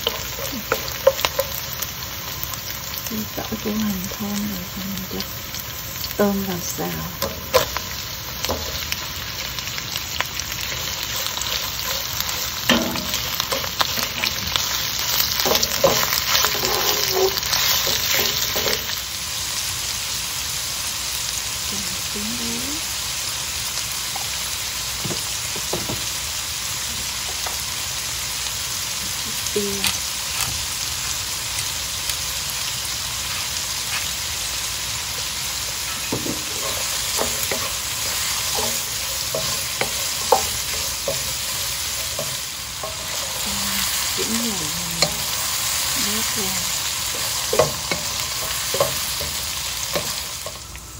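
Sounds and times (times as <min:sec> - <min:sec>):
spatula tapping and scraping pan: 0:00.0 - 0:01.6, 0:07.2 - 0:09.5, 0:10.6 - 0:18.9, 0:35.9 - 0:43.5, 0:47.1 - 0:50.6
food sizzling in hot oil: 0:00.0 - 0:50.9.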